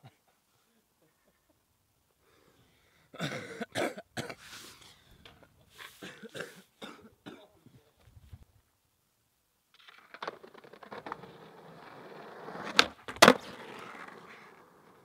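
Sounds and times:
man clearing his throat: 3.2 - 4.4, 6.0 - 7.6
man coughing hard: 3.2 - 4.4, 6.0 - 7.6.

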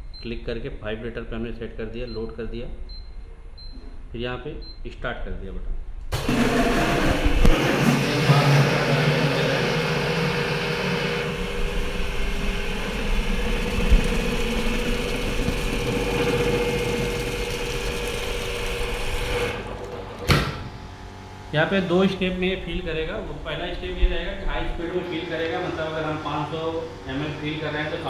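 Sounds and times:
filling machine motor humming: 6.1 - 28.0.

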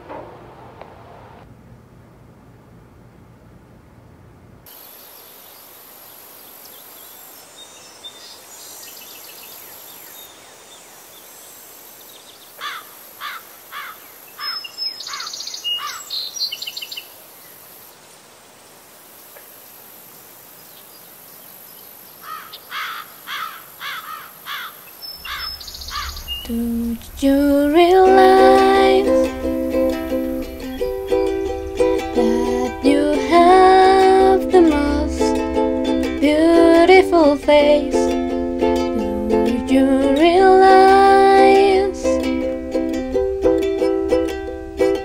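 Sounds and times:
insects hissing: 4.7 - 37.4
quick falling bird chirps: 22.2 - 26.5.

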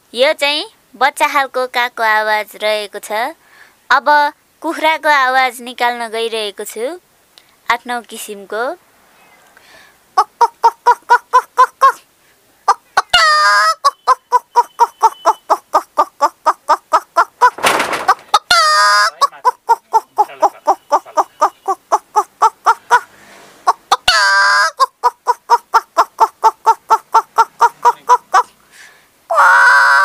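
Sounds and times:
woman imitating hen clucks: 10.2 - 12.0, 12.6 - 17.6, 18.3 - 23.1, 23.7 - 28.5, 29.3 - 30.0
woman squawking: 12.7 - 17.6, 18.4 - 23.1, 23.8 - 28.5, 29.3 - 30.0.

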